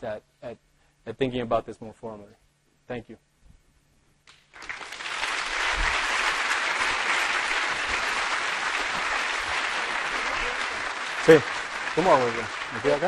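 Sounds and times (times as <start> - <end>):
audience applauding: 4.3 - 13.0.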